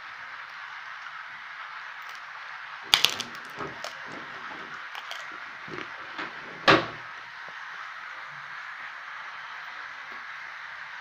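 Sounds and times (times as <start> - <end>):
steady hiss: 0.0 - 11.0
plastic toy train clicks: 2.9 - 4.1.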